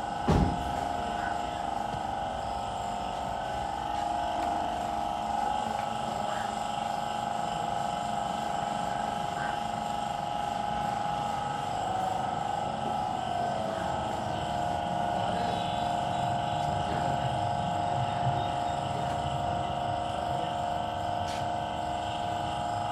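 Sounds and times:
droning machine: 0.0 - 22.9.

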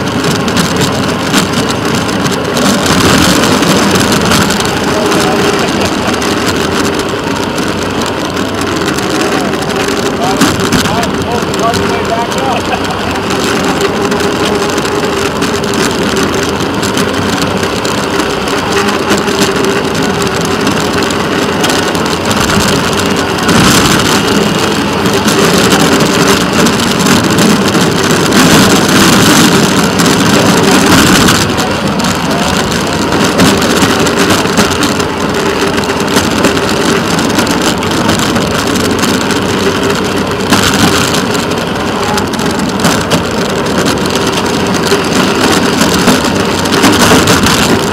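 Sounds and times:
engine hum: 0.0 - 47.9
wheels rattling on rails: 0.0 - 47.9.

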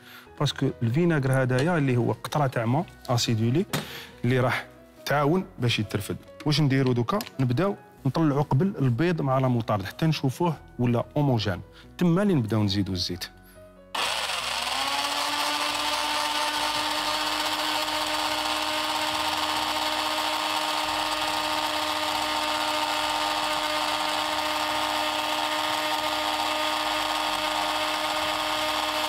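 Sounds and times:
blender motor whining: 13.9 - 29.0.

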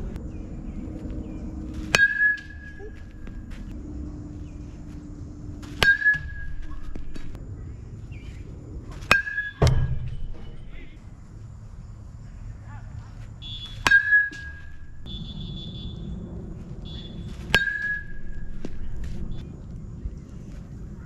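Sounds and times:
ball thudding: 5.6 - 7.4, 9.0 - 10.9, 17.3 - 19.4.

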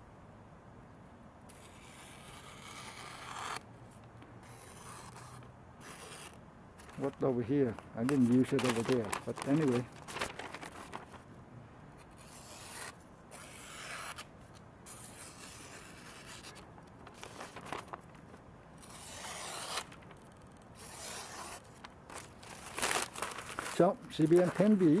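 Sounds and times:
knife slicing paper: 1.5 - 3.6, 4.4 - 7.2, 8.0 - 11.2, 12.0 - 14.3, 14.9 - 18.1, 18.8 - 20.1, 20.8 - 25.0.

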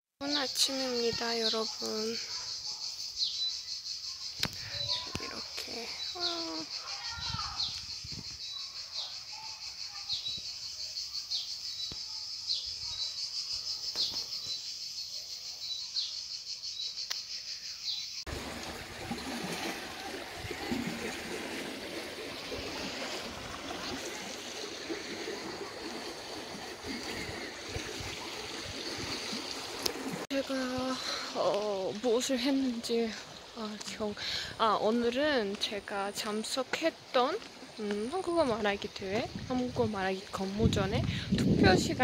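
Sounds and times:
water rushing along a channel: 18.3 - 42.0.

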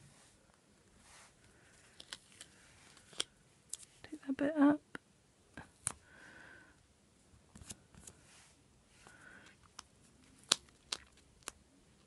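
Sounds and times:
tape and paper rustling: 1.8 - 3.9.

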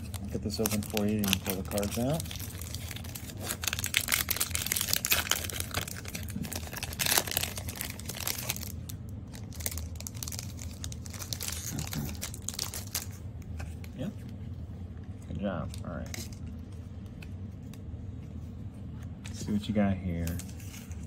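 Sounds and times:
foil wrapper tearing and crinkling: 0.0 - 13.2.

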